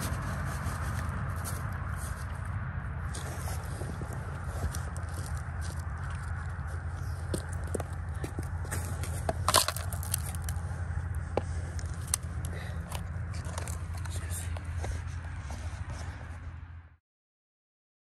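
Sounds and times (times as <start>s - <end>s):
low rumble: 0.0s - 17.0s
gravel clicking in plastic pans: 7.2s - 10.6s, 11.3s - 14.8s.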